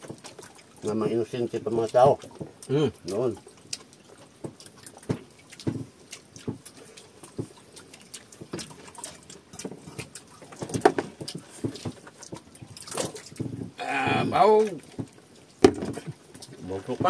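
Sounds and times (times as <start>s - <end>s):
light taps and knocks: 4.4s - 6.7s, 9.6s - 12.5s, 14.9s - 17.0s.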